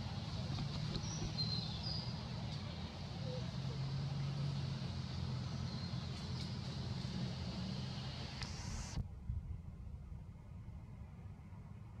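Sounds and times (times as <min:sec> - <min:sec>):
engine running: 0:00.0 - 0:09.1.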